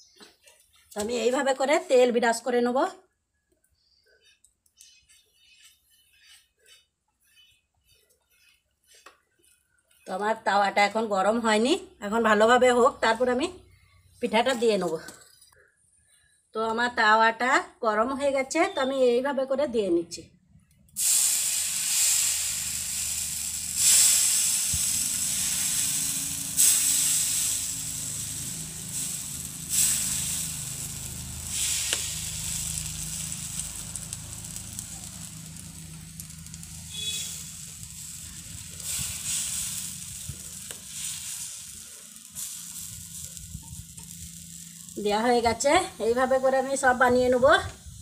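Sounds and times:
batter sizzling on hot pan: 0:20.9 - 0:48.0.

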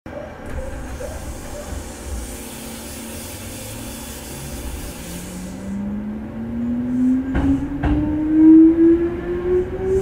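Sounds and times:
train motor hum rising in pitch: 0:00.4 - 0:10.0
hiss: 0:01.0 - 0:05.8.

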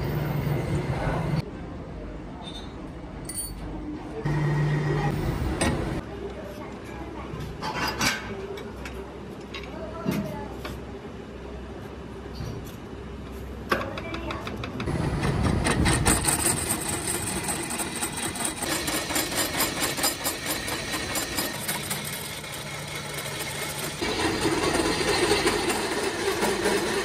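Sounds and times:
rattle of metal cutting: 0:14.6 - 0:27.0
metal lathe running: 0:14.9 - 0:27.0.

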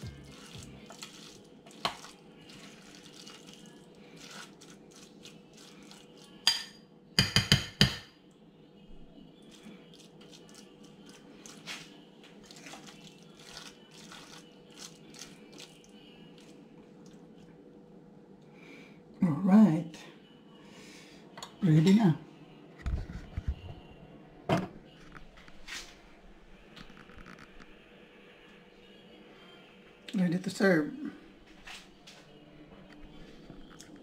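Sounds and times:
faint steady hum: 0:08.1 - 0:34.0.

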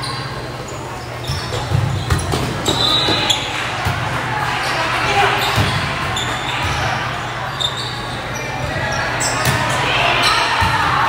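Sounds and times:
shoes squeaking on floor: 0:00.0 - 0:03.6, 0:04.6 - 0:10.5
voices echoing in hall: 0:00.0 - 0:11.0
volleyball hits and bounces: 0:01.4 - 0:04.3, 0:05.1 - 0:07.0, 0:08.6 - 0:11.0.

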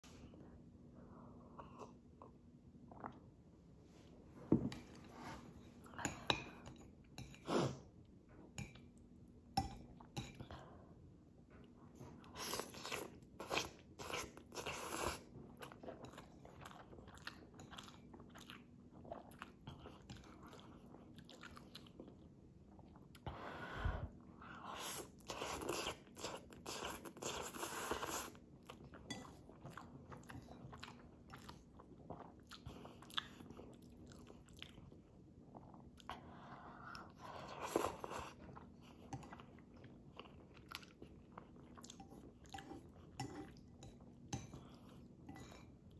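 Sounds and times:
chewing: 0:12.3 - 0:23.2, 0:25.2 - 0:45.9.

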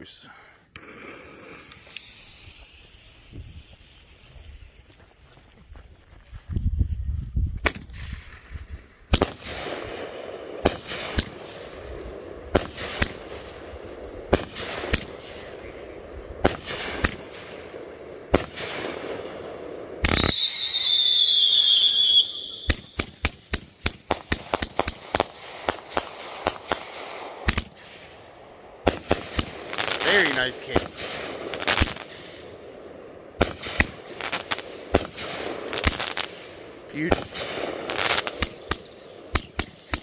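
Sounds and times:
firework crackles: 0:00.6 - 0:06.5, 0:07.4 - 0:40.0
firework bangs: 0:00.8 - 0:05.2, 0:09.1 - 0:32.7, 0:33.4 - 0:40.0
shrill firework whistle: 0:01.6 - 0:04.9, 0:20.0 - 0:23.1.

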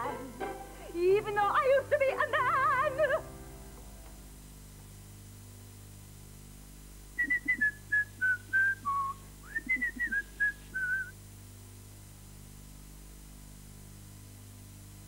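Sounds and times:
woman whistling a tune: 0:07.2 - 0:11.2.

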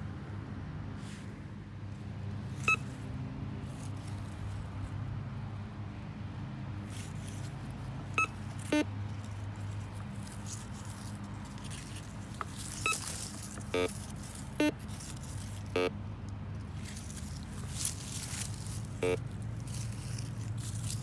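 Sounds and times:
metal detector beeps: 0:02.6 - 0:02.8, 0:08.2 - 0:08.9, 0:12.8 - 0:13.1, 0:13.7 - 0:14.8, 0:15.7 - 0:15.9, 0:19.0 - 0:19.2.

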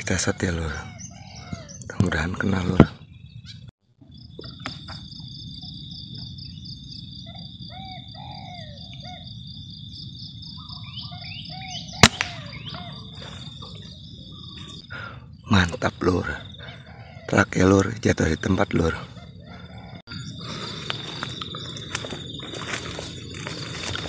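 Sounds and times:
air rifle shot: 0:12.0 - 0:12.7
high insect buzz: 0:20.2 - 0:24.0.

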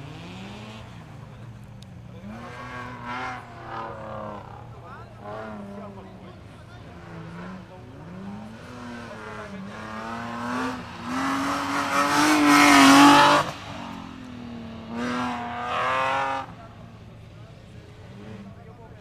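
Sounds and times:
car engine revving hard: 0:02.2 - 0:06.2, 0:06.8 - 0:16.8.

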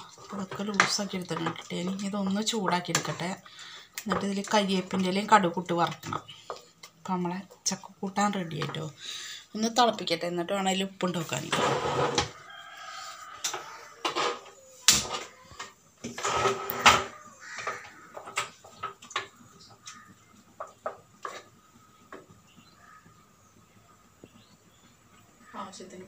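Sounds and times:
pot and metal utensils clattering: 0:00.0 - 0:06.7, 0:13.4 - 0:21.6.

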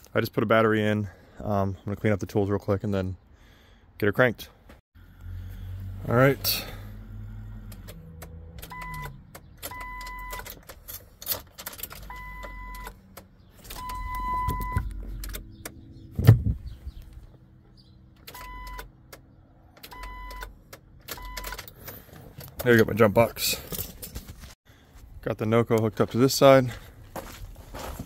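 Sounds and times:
car warning chime beeps: 0:08.6 - 0:10.5, 0:12.0 - 0:13.0, 0:13.7 - 0:15.0, 0:18.3 - 0:18.9, 0:19.8 - 0:20.5, 0:21.1 - 0:21.6.

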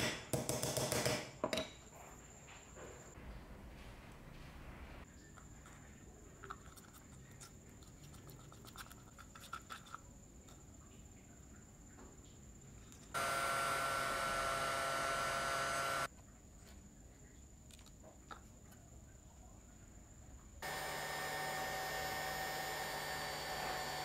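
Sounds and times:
electric motor hum: 0:13.2 - 0:16.1, 0:20.6 - 0:24.0.

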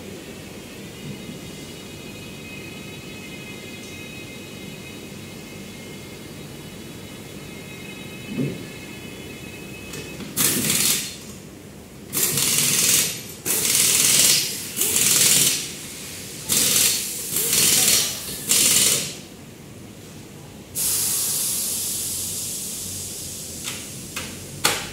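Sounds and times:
pneumatic impact wrench rattling: 0:10.4 - 0:11.2, 0:12.1 - 0:15.7, 0:16.4 - 0:19.2.

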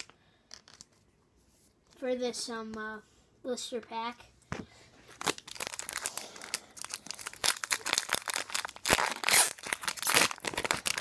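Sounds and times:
foil wrapper crinkling: 0:05.2 - 0:11.0
foil pack tearing: 0:06.8 - 0:11.0.

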